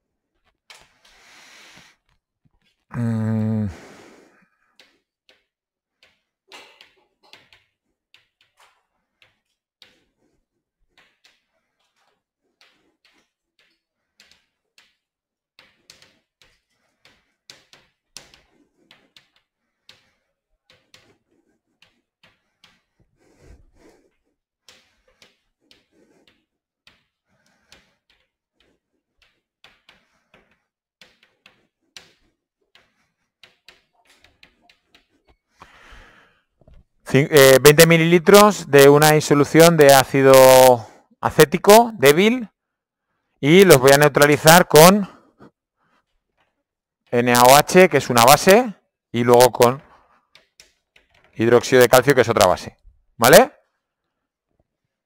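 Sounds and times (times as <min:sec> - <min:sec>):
chalk writing on chalkboard: 0:04.8 - 0:35.6.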